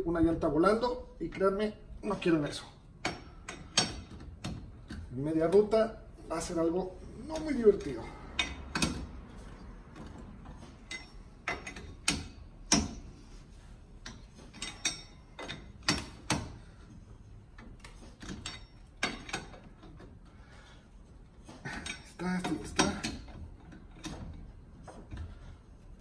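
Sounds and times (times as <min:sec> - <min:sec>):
metal clinks: 0:10.8 - 0:13.0, 0:14.0 - 0:16.3.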